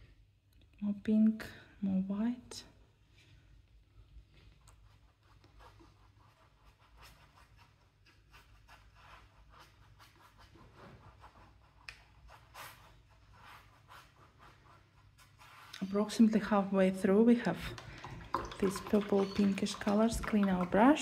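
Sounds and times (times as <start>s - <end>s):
paintbrush scratchy strokes: 4.7s - 16.6s.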